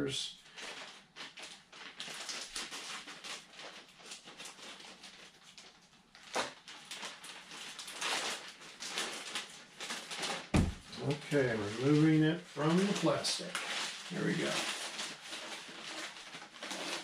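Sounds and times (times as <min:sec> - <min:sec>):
plastic crinkling and rustling: 0:00.4 - 0:17.0
sharp knock: 0:10.6 - 0:10.9.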